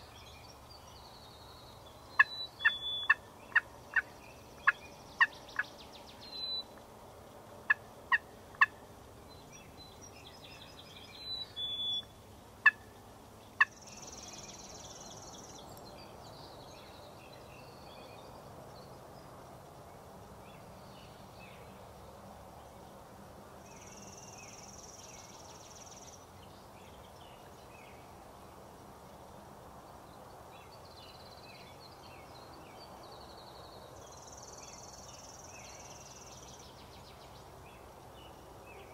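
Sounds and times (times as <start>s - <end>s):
wild turkey calling: 2.2s - 5.7s, 7.7s - 8.8s, 11.3s - 12.9s.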